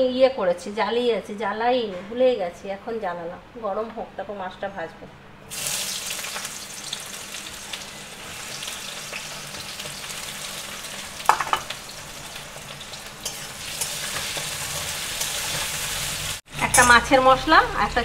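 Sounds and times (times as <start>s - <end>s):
fish sizzling in oil: 5.5s - 16.5s
sharp clinks: 16.6s - 17.1s.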